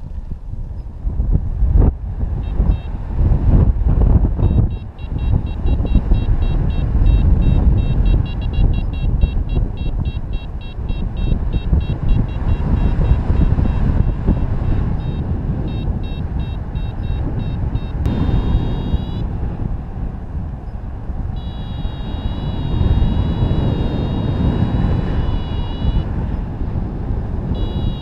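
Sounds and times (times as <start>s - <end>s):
wind rush on microphone: 0.0s - 28.0s
fast high beeping: 2.4s - 2.9s, 4.4s - 14.4s, 15.0s - 19.2s, 21.4s - 26.1s, 27.6s - 28.0s.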